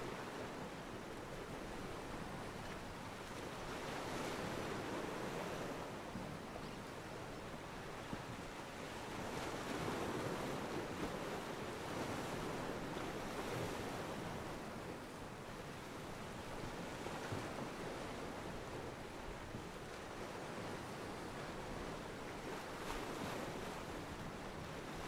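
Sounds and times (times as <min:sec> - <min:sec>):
small waves washing against pier: 0:07.8 - 0:25.0.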